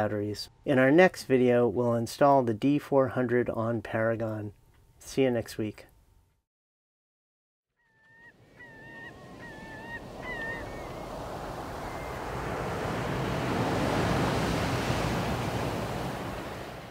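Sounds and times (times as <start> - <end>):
bird short calls: 7.8 - 11.2
sea waves washing in: 8.4 - 16.9.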